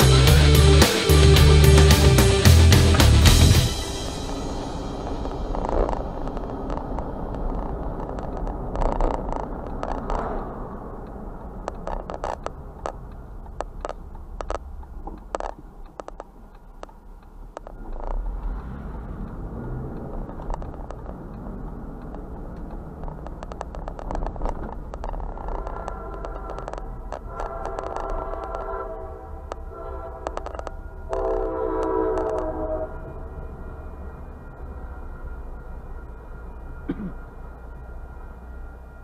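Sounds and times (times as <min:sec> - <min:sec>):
car road and engine rumble: 0:00.0 - 0:39.0
clicks and rattles: 0:11.6 - 0:18.2.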